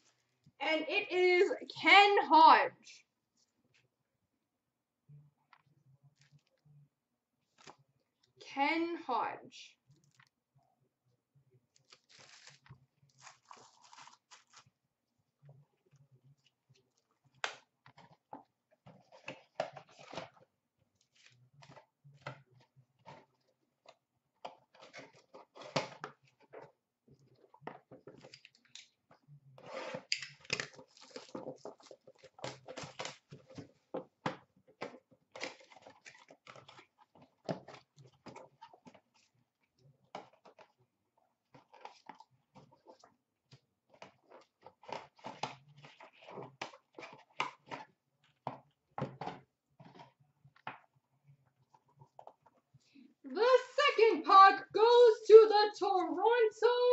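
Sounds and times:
plastic bag crinkling: 11.8 - 14.7.

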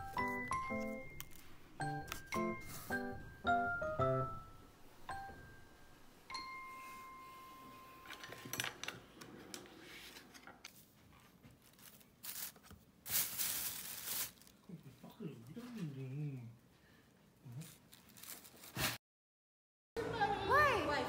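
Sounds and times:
plastic bag crinkling: 11.6 - 14.8, 17.6 - 18.8.

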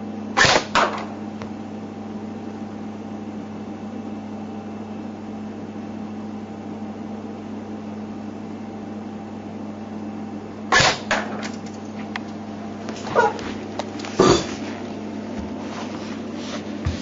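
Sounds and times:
steady low hum: 0.0 - 17.0
airsoft rifle shots: 0.4 - 1.1, 10.7 - 11.5.

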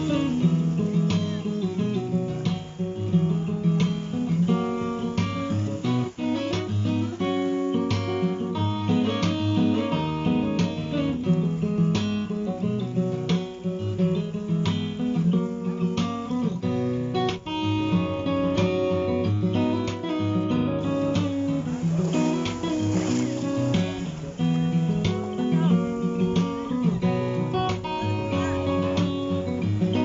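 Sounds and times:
acoustic guitar music: 0.0 - 30.0.

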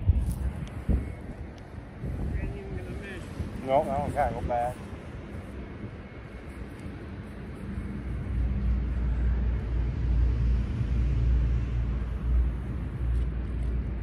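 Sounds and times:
low rumble: 0.0 - 14.0.

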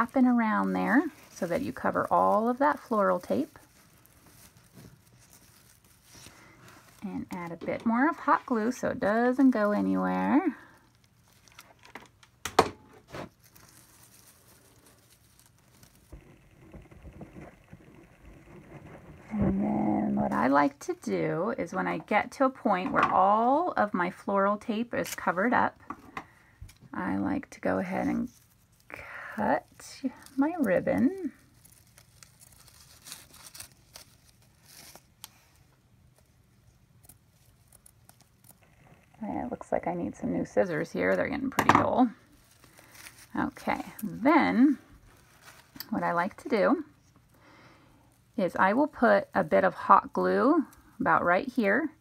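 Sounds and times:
ribbon rustling: 0.0 - 12.4, 13.0 - 52.0.

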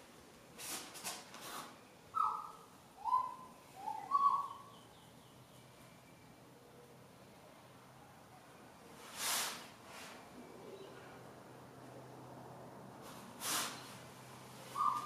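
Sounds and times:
bird whistling: 2.1 - 4.8, 14.7 - 15.0.

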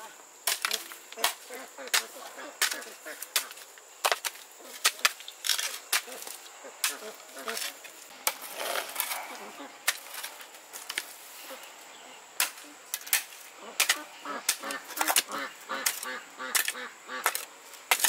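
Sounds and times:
geese honking: 13.6 - 17.4.

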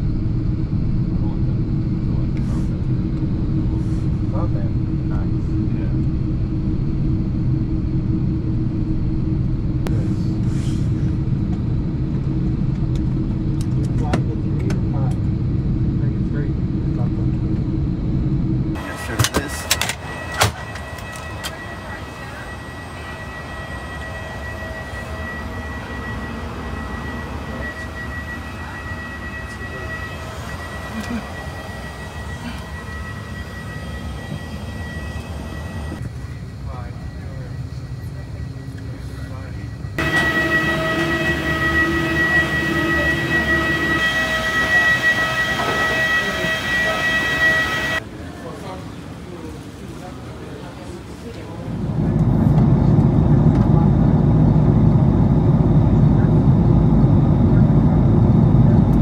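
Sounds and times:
low rumble: 0.0 - 19.0, 51.5 - 59.0
airliner cabin rumble: 0.0 - 59.0
vehicle whine: 0.0 - 59.0
high-pitched tone: 18.8 - 36.1, 40.0 - 48.0.

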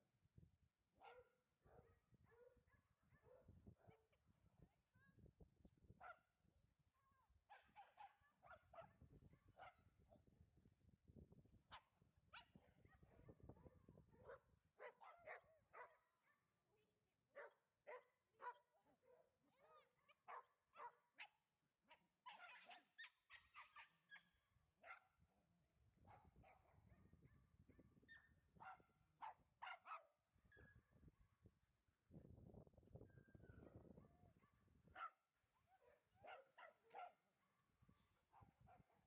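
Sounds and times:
dogs barking and yipping: 14.3 - 16.0, 28.6 - 30.0, 35.8 - 37.1.

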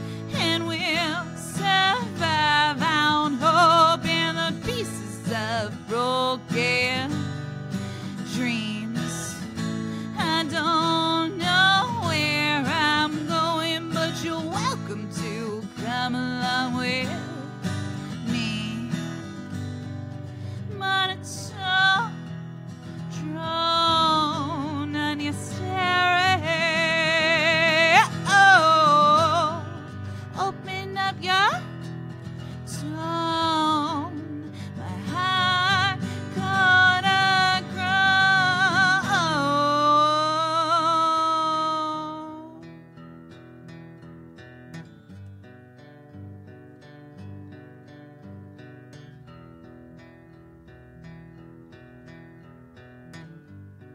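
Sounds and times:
woman singing: 0.0 - 19.8, 20.6 - 42.7
acoustic guitar strumming: 0.0 - 53.9.

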